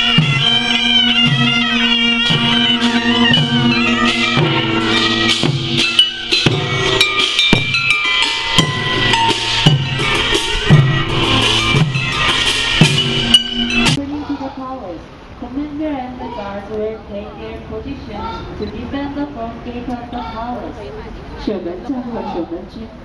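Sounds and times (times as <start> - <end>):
sharp percussion strikes: 0.0 - 14.0
steady drum beat: 0.0 - 14.0
reedy wind instruments and horns: 0.0 - 15.0.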